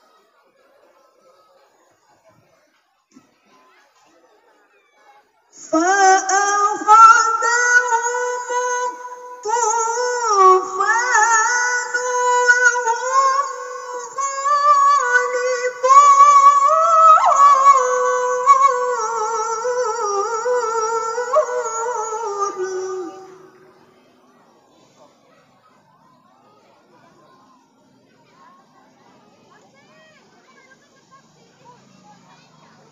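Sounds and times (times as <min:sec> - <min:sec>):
woman reciting melodically: 0:05.6 - 0:24.2.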